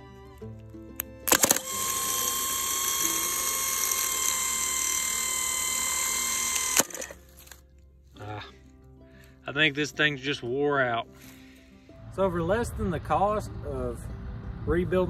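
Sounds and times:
starter motor whining: 1.0s - 7.2s
starter solenoid clicks: 1.0s - 7.2s.

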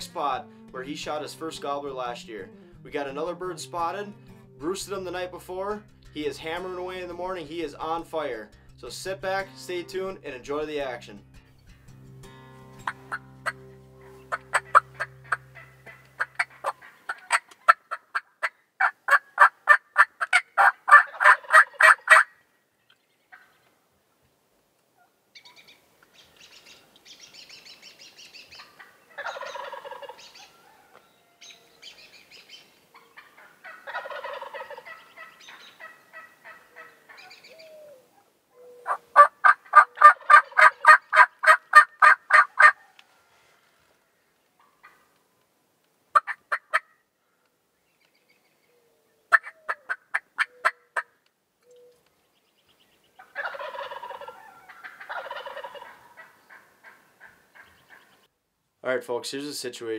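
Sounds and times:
wild turkeys calling: 12.9s - 23.7s, 25.0s - 45.2s, 46.1s - 47.0s, 48.6s - 52.1s, 52.7s - 58.3s.

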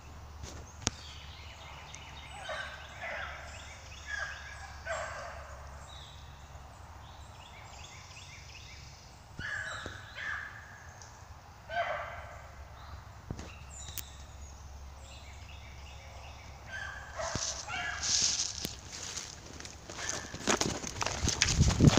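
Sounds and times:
dogs baying: 2.3s - 5.7s, 11.7s - 12.5s, 16.7s - 18.5s, 19.9s - 20.6s.

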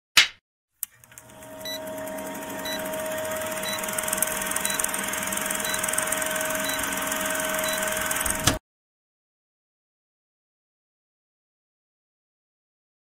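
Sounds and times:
film projector clatter: 0.8s - 8.6s
projector hum: 0.8s - 8.6s.

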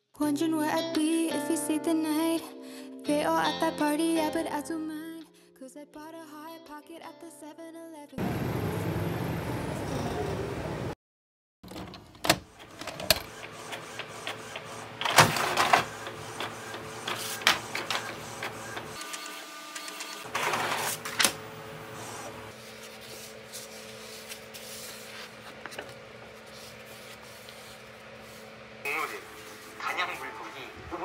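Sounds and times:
inkjet printer printing: 12.4s - 30.2s.

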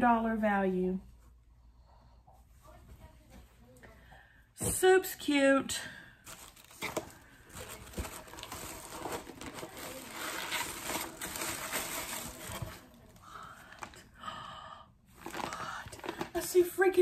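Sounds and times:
packaging rustling and crinkling: 6.2s - 14.0s, 15.2s - 16.6s
plastic-wrapped blanket lifted: 6.3s - 13.2s.

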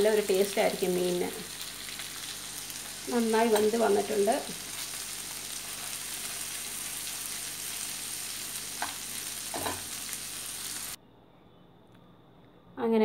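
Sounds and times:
fish sizzling in oil: 0.0s - 11.0s
metal tongs clicking on pan: 3.5s - 3.8s.

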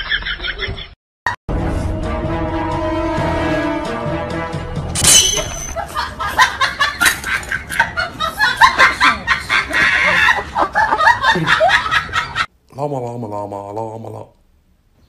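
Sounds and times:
people laughing: 5.8s - 12.5s.

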